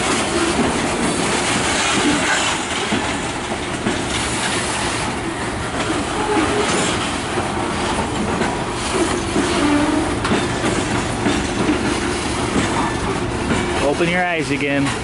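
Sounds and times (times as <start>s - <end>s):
freight train rolling past: 0.0s - 15.0s
wheels on rails: 0.0s - 15.0s.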